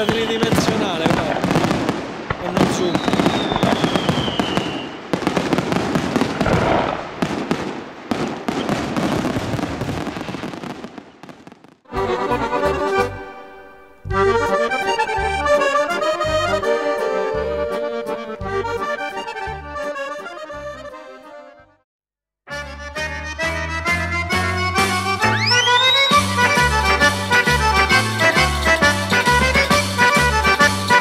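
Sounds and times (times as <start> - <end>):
fireworks crackling and banging: 0.0 - 11.9, 25.7 - 31.0
music with bouncing bass beat: 14.0 - 20.9, 22.6 - 31.0.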